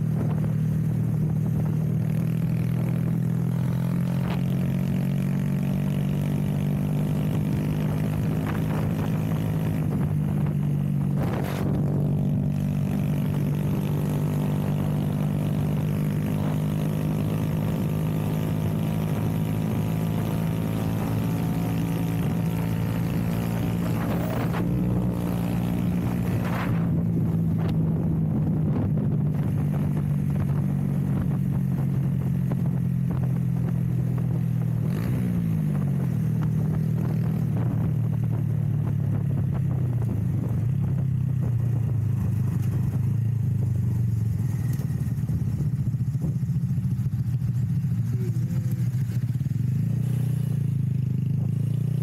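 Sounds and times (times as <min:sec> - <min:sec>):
motorcycle engine running: 0:00.0 - 0:52.0.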